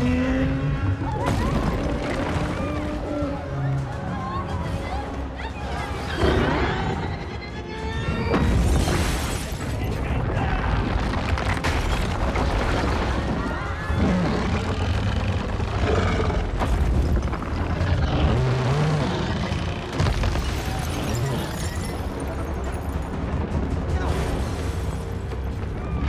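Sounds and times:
action film music: 0.0 - 26.0
debris crashing: 8.3 - 15.8, 19.2 - 26.0.

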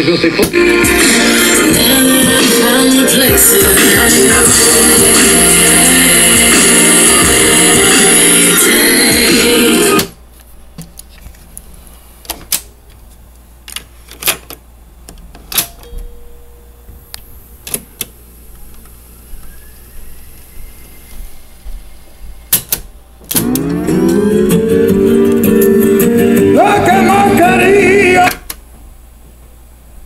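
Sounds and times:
music from boombox: 0.0 - 10.2, 23.4 - 28.4.

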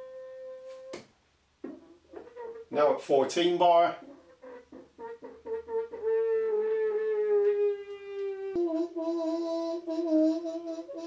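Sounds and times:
radiator groaning horn-like tone: 0.0 - 0.9, 6.1 - 11.0.

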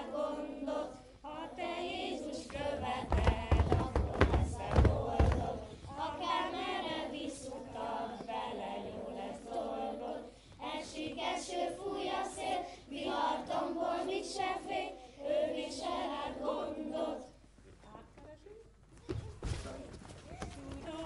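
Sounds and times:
children singing: 0.0 - 17.3
woman singing: 2.4 - 6.6.

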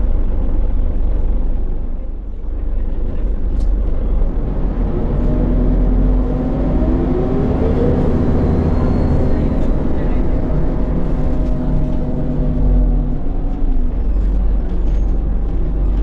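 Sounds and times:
bus engine rumbling: 0.0 - 16.0.

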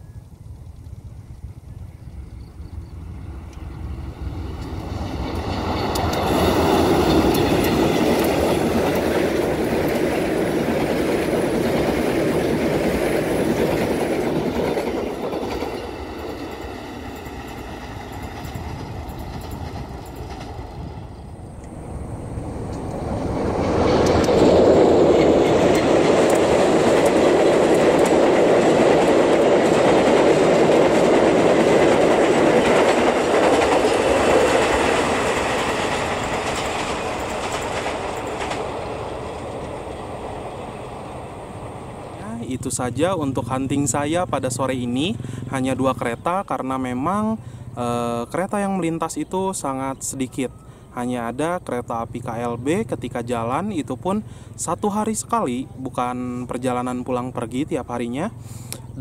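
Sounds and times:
train wheels on rails: 0.0 - 50.6.

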